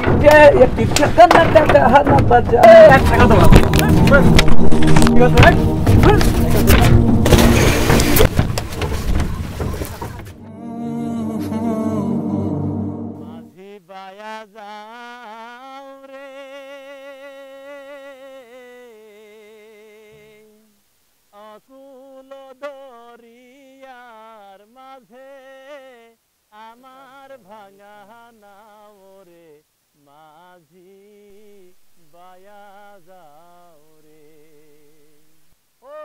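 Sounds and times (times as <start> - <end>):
person singing unaccompanied: 0.0 - 8.3, 10.3 - 36.0.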